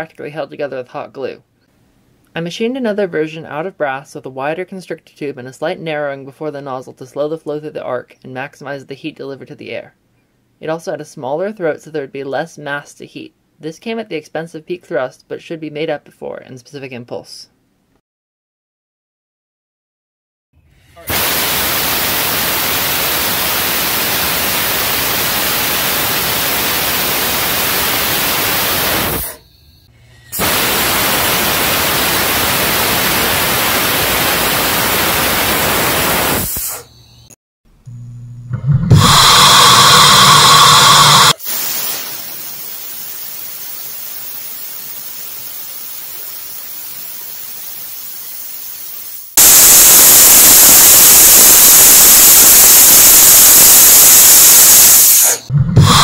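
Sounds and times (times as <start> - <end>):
compressed air hissing from nozzle: 21.0 - 29.4, 30.3 - 33.0, 35.9 - 36.8, 39.0 - 56.0
steady buzz: 37.8 - 41.4.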